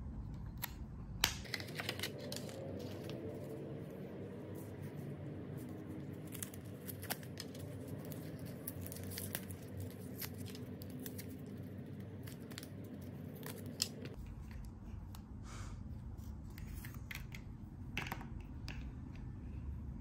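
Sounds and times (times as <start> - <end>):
paper rustling: 1.4 - 14.5.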